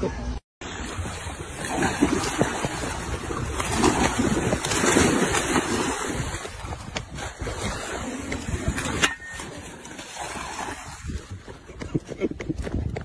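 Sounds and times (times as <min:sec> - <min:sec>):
wind rumbling on microphone: 0:00.1 - 0:13.0.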